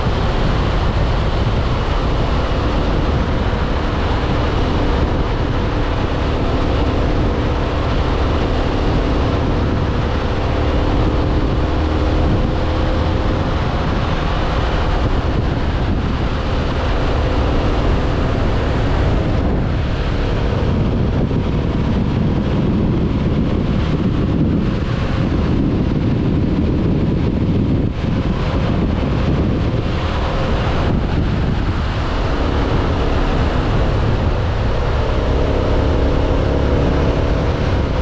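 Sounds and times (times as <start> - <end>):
motorcycle engine cruising: 0.0 - 38.0
road noise: 0.0 - 38.0
wind buffeting microphone: 0.0 - 38.0.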